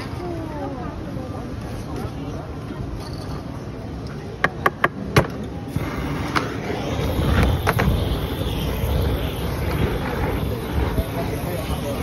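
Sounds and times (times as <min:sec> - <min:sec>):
torch flame rushing: 0:05.5 - 0:12.0
aerosol spray paint hissing: 0:05.7 - 0:12.0.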